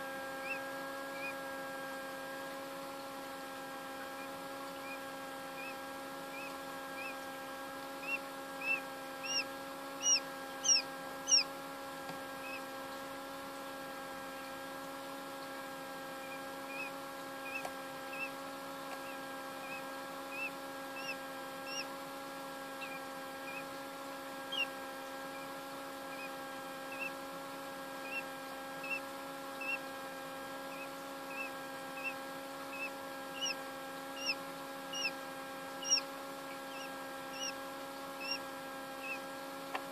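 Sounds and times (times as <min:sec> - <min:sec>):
incubator fan hum: 0:00.0 - 0:39.9
chick peeping: 0:00.4 - 0:01.4, 0:04.2 - 0:07.2, 0:08.0 - 0:11.5, 0:12.4 - 0:12.6, 0:16.2 - 0:21.9, 0:22.7 - 0:23.7, 0:24.5 - 0:24.7, 0:26.1 - 0:27.2, 0:28.0 - 0:29.8, 0:30.7 - 0:33.6, 0:34.2 - 0:35.2, 0:35.8 - 0:37.6, 0:38.2 - 0:38.4, 0:39.0 - 0:39.3.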